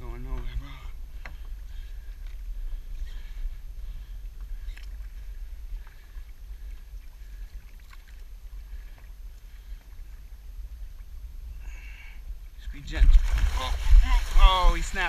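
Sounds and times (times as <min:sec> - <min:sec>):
water lapping against boat hull: 0:00.2 - 0:12.0, 0:12.9 - 0:15.0
wind rumble: 0:12.3 - 0:15.0
faint knocks and splashes: 0:12.9 - 0:15.0.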